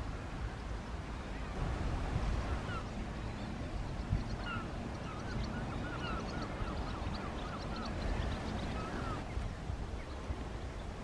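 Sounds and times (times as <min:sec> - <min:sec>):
wind buffeting microphone: 0:00.0 - 0:11.0
bird calling: 0:02.4 - 0:11.0.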